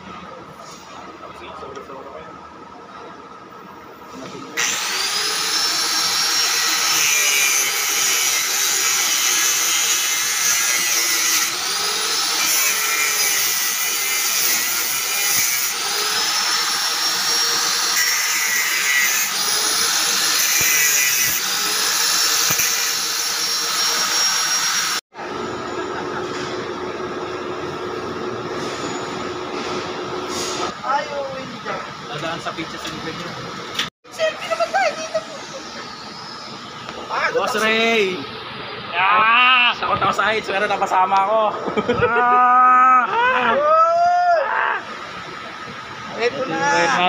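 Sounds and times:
angle grinder cutting cable: 4.6s - 25.0s.

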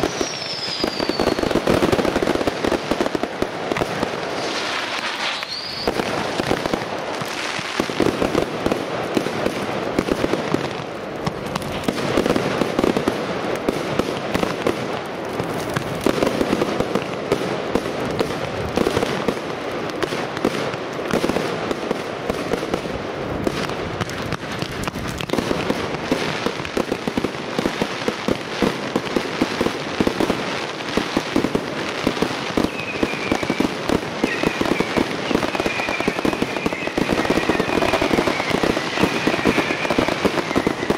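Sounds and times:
fireworks crackling: 0.0s - 40.9s
firework shell bursts: 4.2s - 6.3s.

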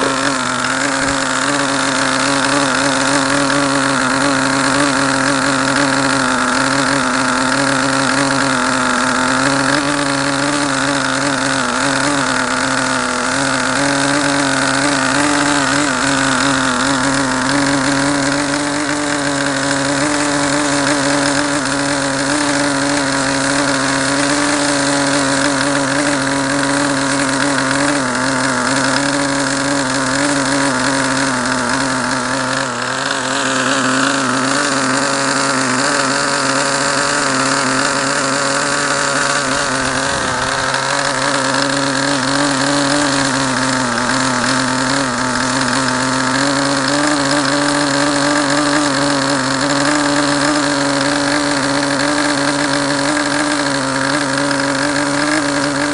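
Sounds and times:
model glow engine running: 0.0s - 55.9s.

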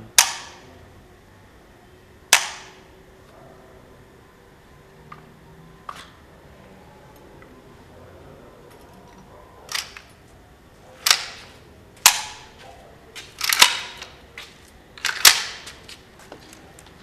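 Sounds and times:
metallic clacks of rifle action: 8.8s - 10.2s, 13.2s - 14.2s, 15.0s - 15.8s.

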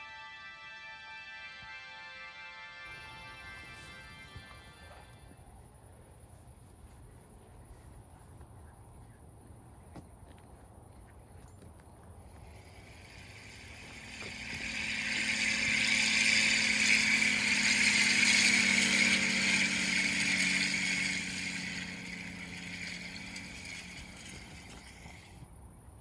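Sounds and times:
engine passing by: 1.8s - 5.4s, 12.3s - 25.4s.

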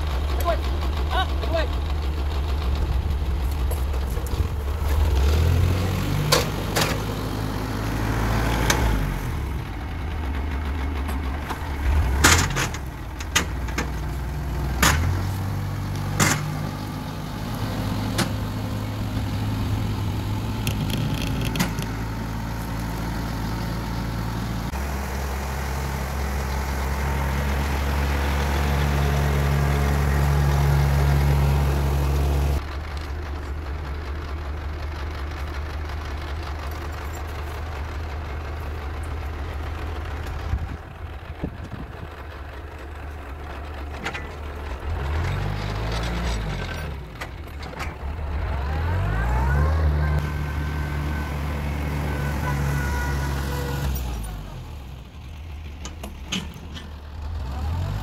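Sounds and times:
tractor engine running: 0.0s - 58.0s
sharp knocks and cracks: 14.7s - 15.4s, 16.0s - 16.7s.

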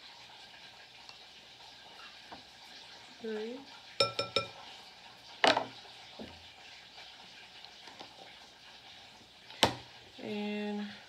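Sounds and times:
metal spoon clinking on glass bowl: 4.0s - 4.6s.

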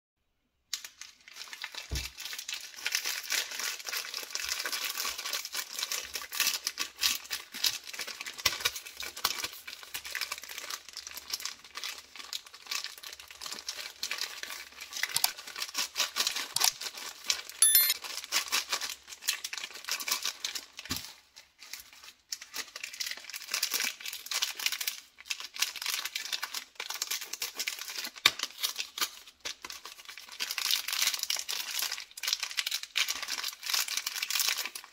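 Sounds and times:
plastic wrappers crinkling: 0.7s - 17.4s, 18.5s - 34.9s.

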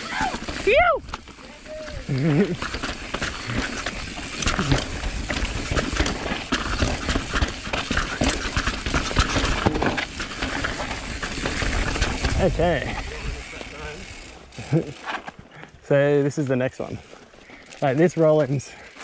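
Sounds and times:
bike clattering over rocks: 0.0s - 15.5s, 17.0s - 19.0s.

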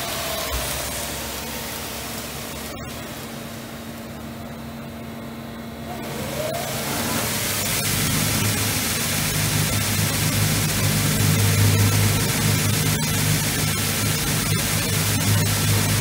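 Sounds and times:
low motor hum: 0.0s - 16.0s
belt grinder harsh hiss: 6.0s - 16.0s.

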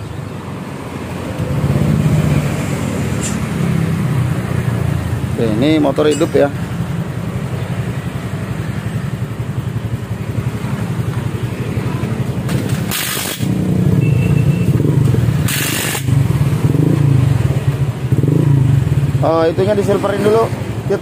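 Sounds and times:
scooter engine running: 6.6s - 19.2s
short bursts of hiss: 15.4s - 16.1s.

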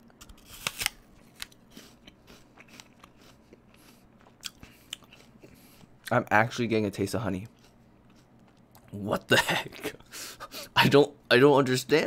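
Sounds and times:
apple crunching bite: 0.2s - 6.2s
chewing with crunches: 1.2s - 6.2s, 7.4s - 9.0s.

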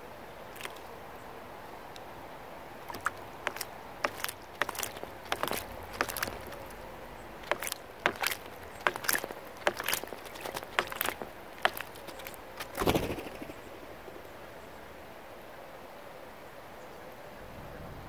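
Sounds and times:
bird splashing in water: 0.4s - 1.0s, 2.8s - 14.4s.

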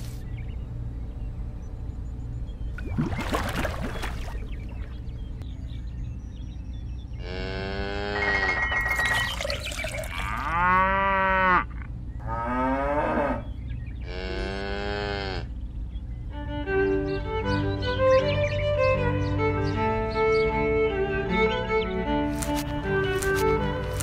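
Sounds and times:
low steady hum: 0.0s - 17.4s
water splash: 2.8s - 5.0s
cattle mooing: 7.2s - 8.7s, 10.1s - 15.5s.

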